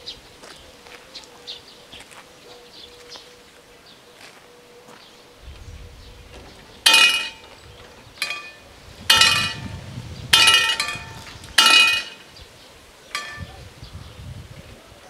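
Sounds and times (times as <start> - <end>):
level-crossing warning bell: 8.2 - 9.7, 10.4 - 12.3, 13.1 - 13.6.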